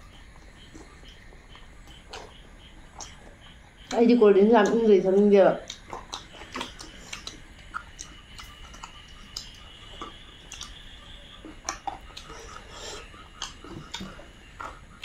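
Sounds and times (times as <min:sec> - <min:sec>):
people chewing food: 0:00.0 - 0:15.0.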